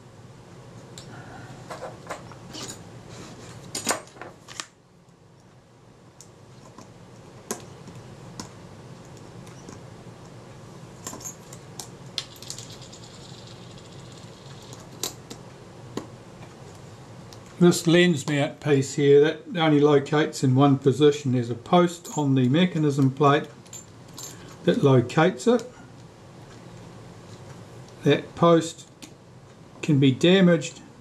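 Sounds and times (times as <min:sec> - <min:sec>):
small metal parts clicking: 0:11.0 - 0:15.3.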